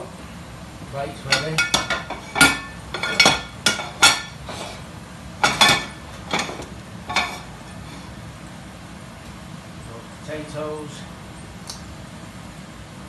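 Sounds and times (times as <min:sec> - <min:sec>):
plates and cookware clinking: 0:01.3 - 0:04.8, 0:05.4 - 0:08.0.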